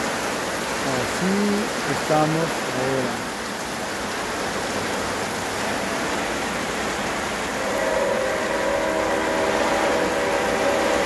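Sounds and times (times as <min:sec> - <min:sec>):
rain falling on trees: 0:00.0 - 0:11.0
multi-tone drone: 0:07.6 - 0:11.0.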